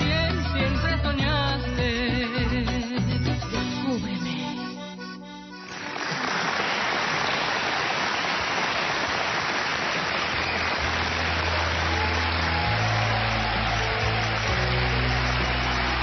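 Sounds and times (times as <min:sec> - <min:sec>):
audience applauding: 0:05.7 - 0:16.0.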